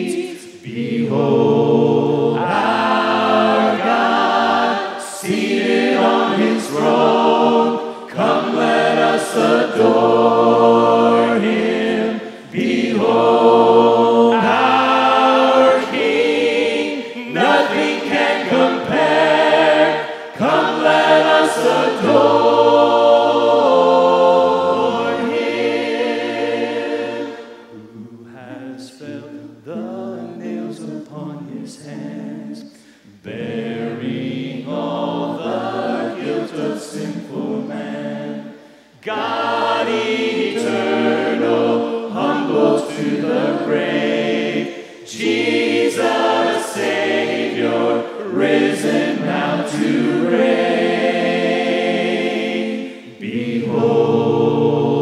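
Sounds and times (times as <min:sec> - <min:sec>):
mixed voices singing a hymn: 0:00.0 - 0:55.0.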